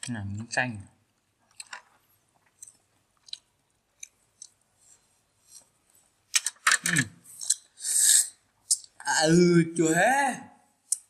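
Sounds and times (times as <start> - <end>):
person chewing with wet crunches: 1.5 - 4.6.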